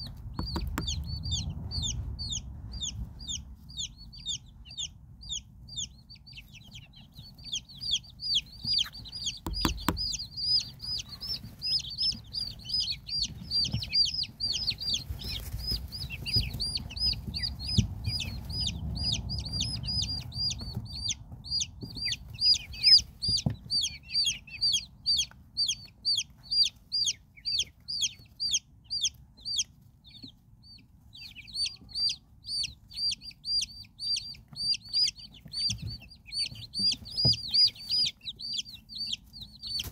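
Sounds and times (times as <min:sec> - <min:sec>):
low thumps: 0:00.0 - 0:03.3, 0:08.6 - 0:23.8
chicks peeping: 0:00.0 - 0:39.9.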